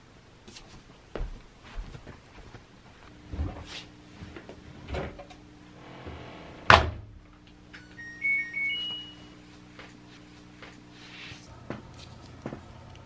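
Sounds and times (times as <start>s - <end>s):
short electronic beeps: 7.9s - 9.4s.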